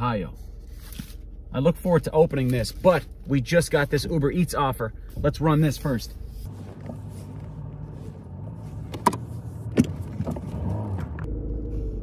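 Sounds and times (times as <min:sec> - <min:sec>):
car engine humming in cabin: 0:00.0 - 0:12.0
rising engine whine: 0:05.8 - 0:12.0.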